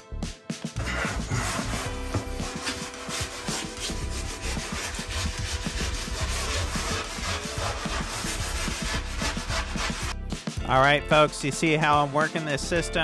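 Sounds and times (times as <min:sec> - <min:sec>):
membrane rubbing and scraping: 0:00.8 - 0:10.2.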